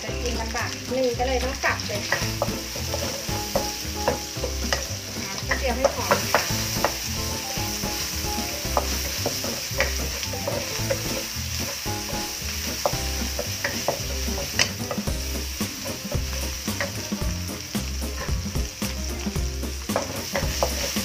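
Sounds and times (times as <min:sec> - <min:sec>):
garlic sizzling in hot oil: 0:00.0 - 0:21.0
spatula scraping pan: 0:01.9 - 0:17.4.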